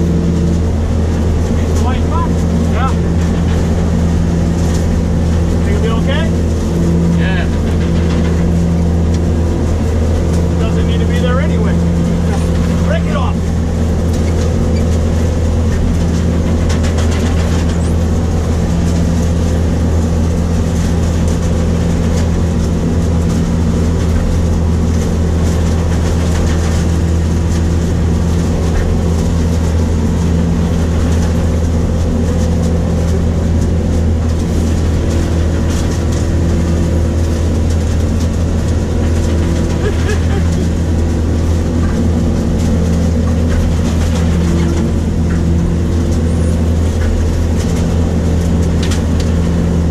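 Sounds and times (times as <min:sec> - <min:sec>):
fine mechanical clatter: 0:00.0 - 0:49.9
low engine drone: 0:00.0 - 0:49.9.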